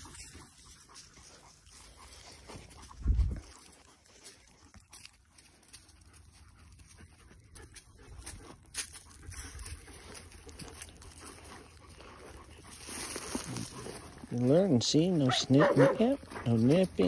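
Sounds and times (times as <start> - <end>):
dog panting: 0.0 - 17.0
dog rolling on dry leaves: 8.6 - 14.5.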